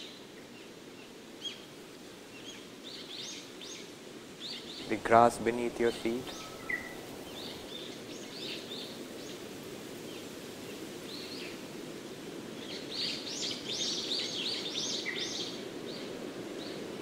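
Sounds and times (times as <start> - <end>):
low outdoor background: 0.0 - 10.5
small birds chirping: 2.3 - 9.4, 12.6 - 17.0.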